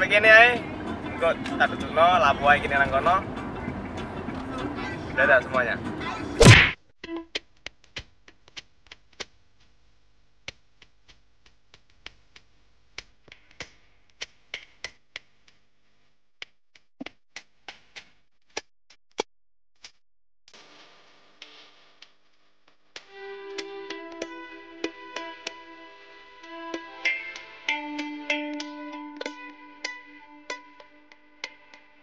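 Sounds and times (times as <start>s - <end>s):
sharp ticks and clicks: 26.4s - 31.9s.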